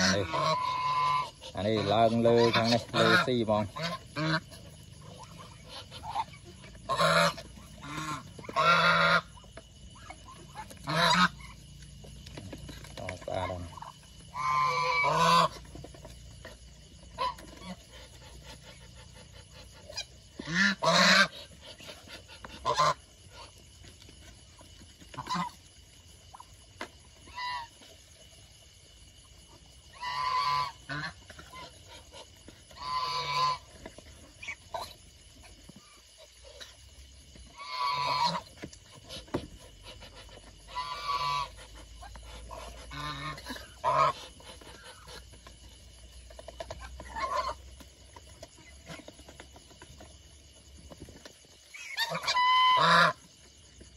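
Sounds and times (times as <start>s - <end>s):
geese honking: 0.0s - 11.6s, 12.6s - 23.6s, 25.1s - 25.7s, 29.9s - 35.0s, 37.4s - 45.4s, 46.3s - 47.6s, 51.6s - 53.3s
geese pecking grain clicks: 0.0s - 28.4s, 29.3s - 53.9s.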